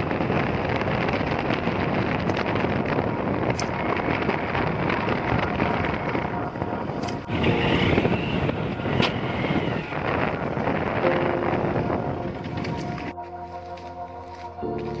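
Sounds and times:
motorcycle engine and road noise: 0.0s - 15.0s
wind rushing over microphone: 0.0s - 15.0s
wavering high tone: 5.4s - 15.0s.

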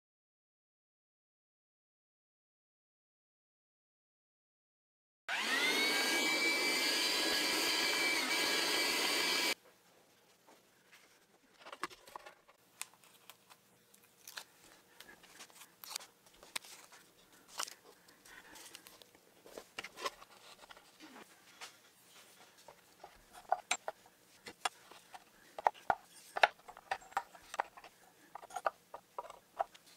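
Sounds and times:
router spindle whining: 5.3s - 9.6s.

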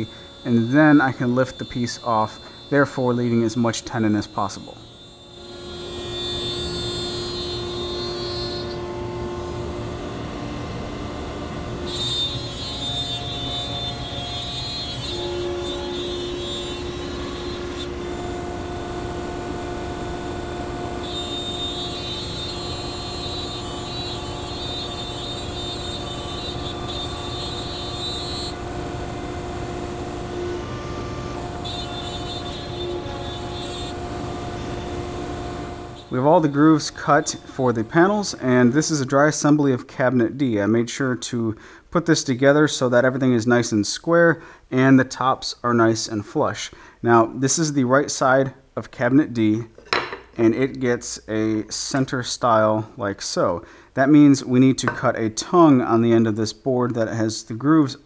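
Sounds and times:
router cutting wood: 0.0s - 39.0s
high whine: 0.0s - 39.6s.

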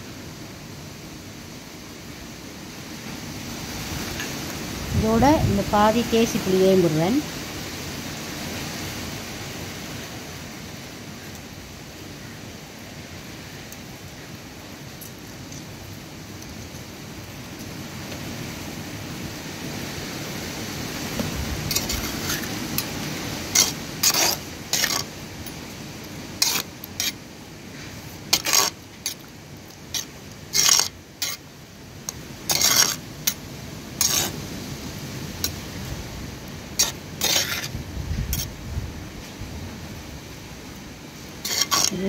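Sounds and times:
spoon stirring wet meat: 21.7s - 25.6s, 28.3s - 31.4s, 32.0s - 33.4s, 41.4s - 42.0s.

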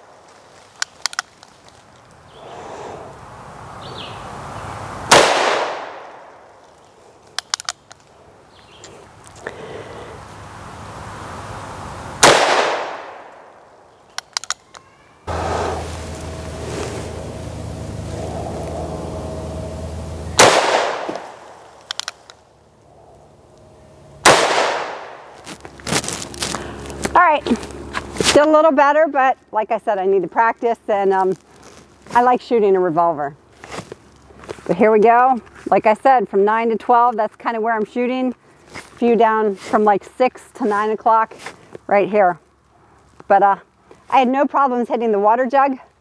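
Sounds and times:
revolver gunshot with echo: 5.1s - 6.2s, 12.2s - 13.4s, 20.4s - 21.6s, 24.2s - 25.2s
sharp clicks: 7.3s - 8.1s, 14.1s - 14.8s, 20.4s - 22.4s.

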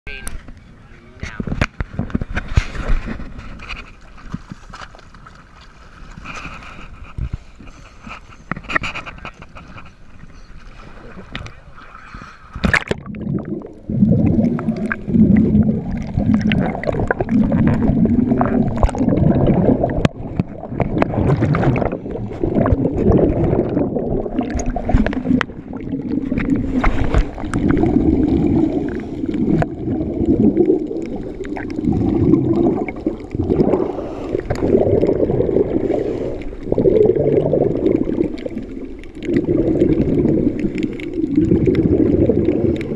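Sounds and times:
exhaled bubbles underwater: 10.2s - 42.9s.

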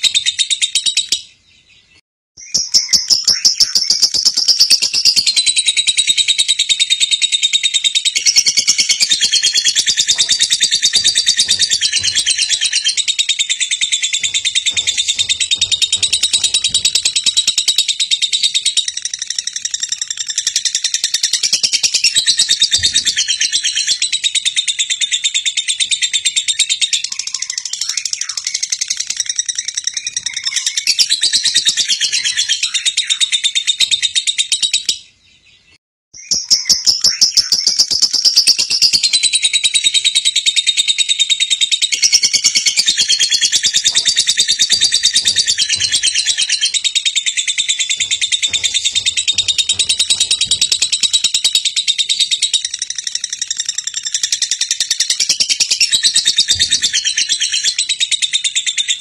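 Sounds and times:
lovebird chattering high-pitched chirps: 2.4s - 34.9s.

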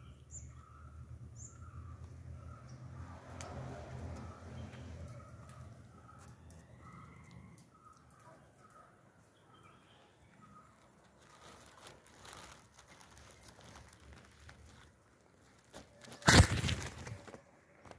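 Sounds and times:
branches and needles rustling: 10.3s - 17.6s.

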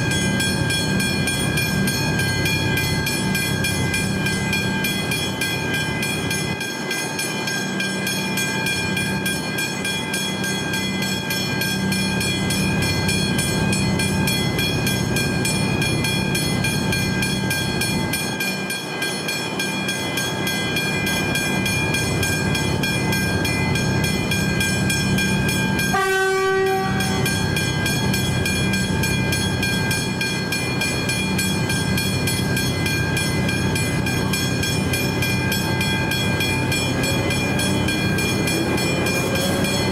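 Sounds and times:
level crossing bells ringing: 0.0s - 39.9s
train horn blast: 25.9s - 27.3s.

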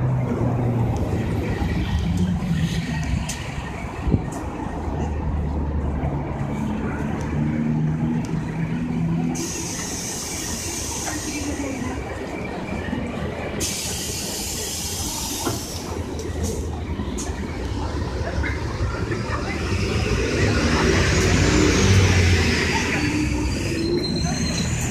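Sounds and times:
bus engine humming: 0.0s - 24.9s
street traffic: 0.0s - 24.9s
air hissing from bus: 9.3s - 12.0s, 13.5s - 16.6s
high squeal: 22.8s - 24.9s.

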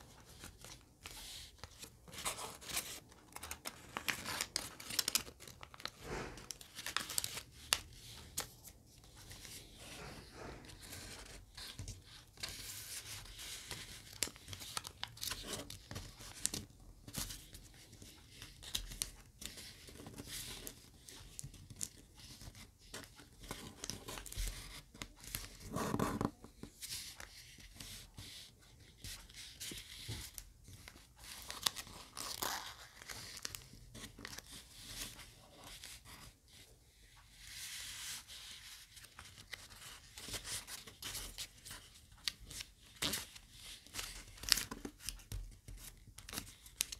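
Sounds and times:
paper crinkling and rustling: 0.0s - 46.9s
paper rubbing: 9.6s - 11.4s.

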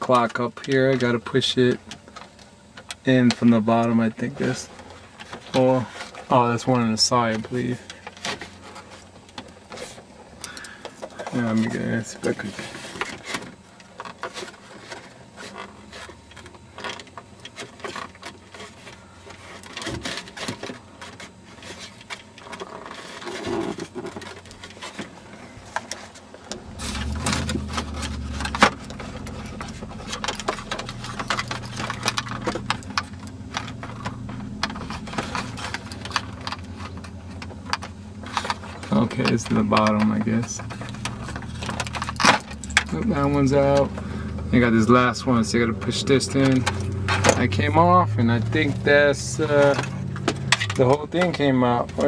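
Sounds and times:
low steady rumble: 0.0s - 52.0s.

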